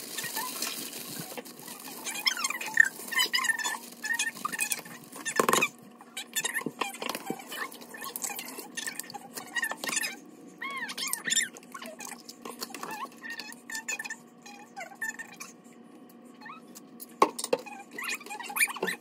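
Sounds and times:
plastic bag crinkling: 0.0 - 5.4.

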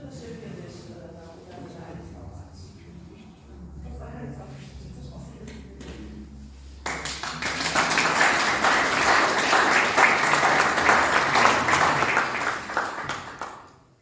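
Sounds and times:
audience applauding: 6.8 - 13.8.

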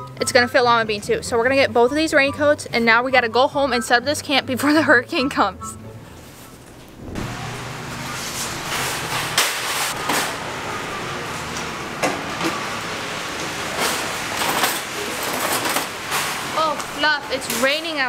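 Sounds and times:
shopping cart rolling and rattling: 7.0 - 18.0.

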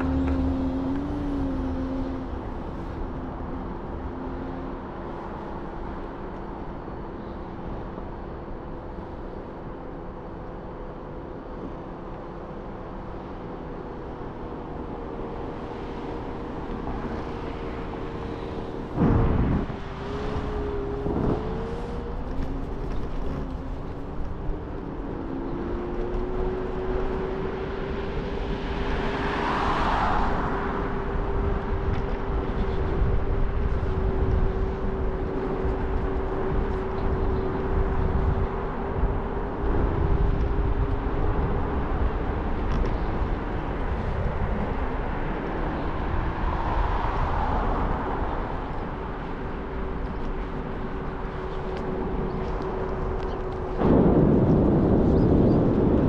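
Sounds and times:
scooter motor whine: 0.0 - 3.5
road rumble: 0.0 - 56.0
wind: 0.0 - 56.0.

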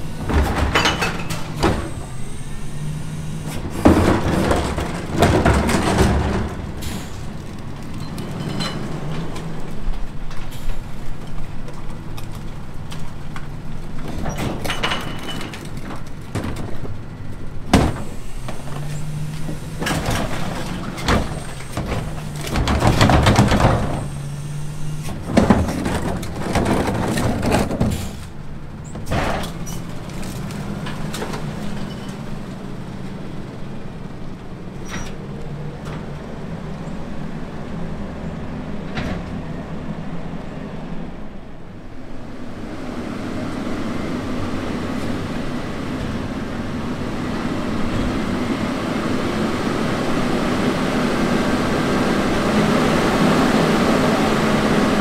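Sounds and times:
garbage truck engine running: 0.0 - 55.0
knocks bangs and clattering: 0.2 - 2.1, 3.6 - 7.2, 19.4 - 24.3, 25.1 - 28.2.

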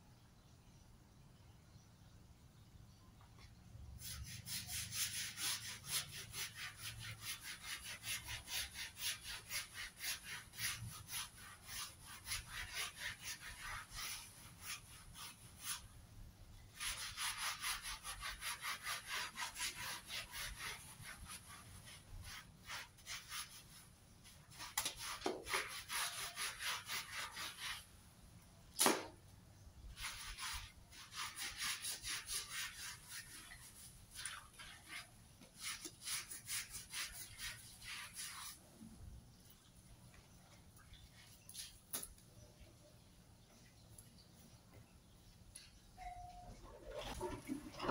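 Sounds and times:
brush scrubbing wet fabric: 4.0 - 28.0, 29.8 - 42.1, 46.7 - 47.9.

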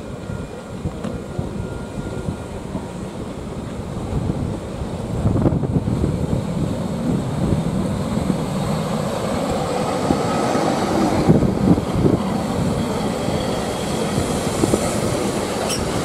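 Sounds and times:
train wheels rumbling on rails: 0.0 - 16.0
train carriage clanks: 12.8 - 16.0.

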